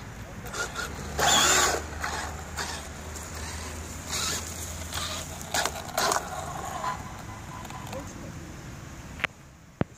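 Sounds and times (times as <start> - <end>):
tyres scrabbling on gravel: 0.4 - 8.2.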